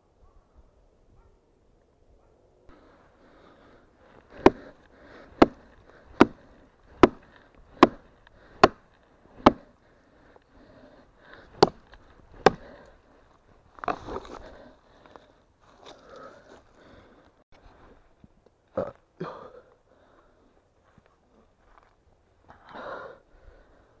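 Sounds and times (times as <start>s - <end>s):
hand tool striking wood: 4.3s - 9.7s, 11.5s - 12.8s
handling rustle: 11.8s - 16.7s.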